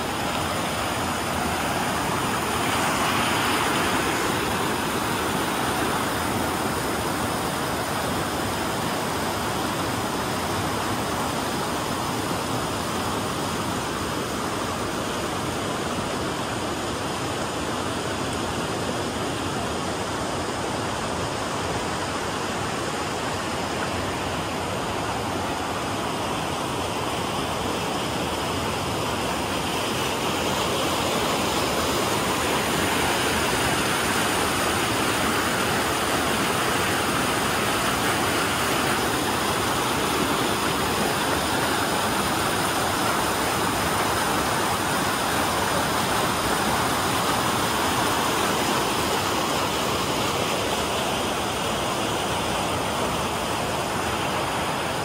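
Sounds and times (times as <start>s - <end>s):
rushing mountain water: 0.0s - 55.0s.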